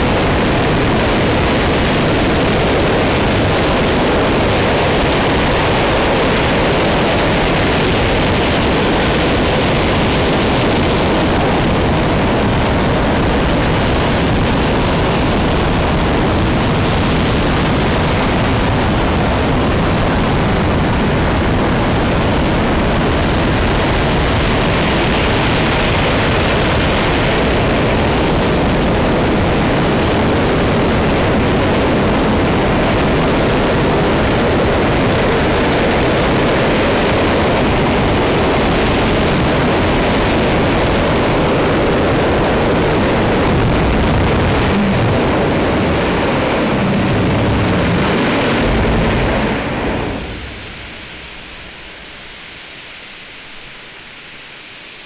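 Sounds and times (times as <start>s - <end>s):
rocket engine roaring: 0.0s - 55.0s
steady hiss: 50.2s - 55.0s.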